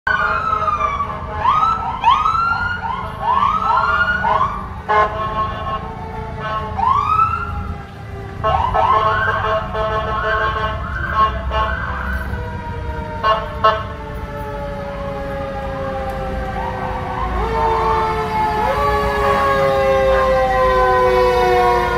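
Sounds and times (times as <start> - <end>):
long falling siren tone: 0.1 - 9.4, 10.5 - 21.9
ambulance siren whooping: 0.1 - 21.9
horn blasts: 4.8 - 7.1, 8.4 - 12.4, 13.2 - 14.1.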